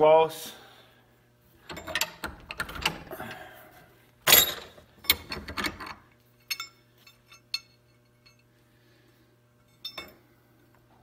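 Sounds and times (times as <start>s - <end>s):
metallic clinks of bolts: 4.3s - 8.5s.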